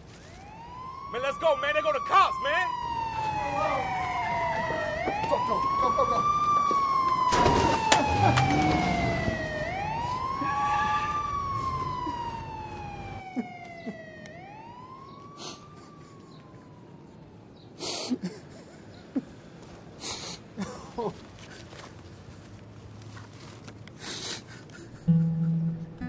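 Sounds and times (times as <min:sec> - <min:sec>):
police siren wailing: 0:00.0 - 0:18.5.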